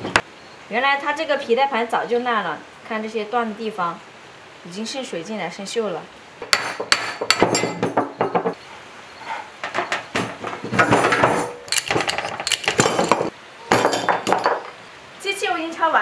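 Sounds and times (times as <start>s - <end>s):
steel tools clanking on metal: 6.4s - 8.2s, 9.2s - 14.8s.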